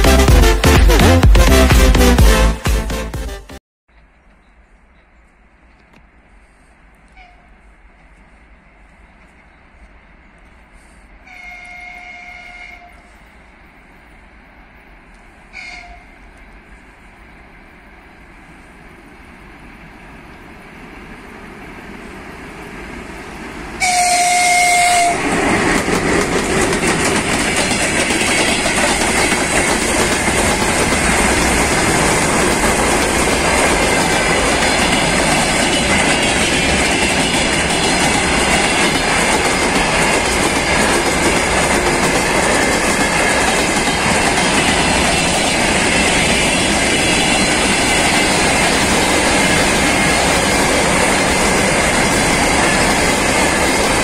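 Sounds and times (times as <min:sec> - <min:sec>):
locomotive approaching: 0:03.9 - 0:54.0
train horn blast: 0:11.2 - 0:13.3, 0:15.5 - 0:16.2, 0:23.8 - 0:25.4
freight wagon wheels rumbling: 0:25.1 - 0:54.0.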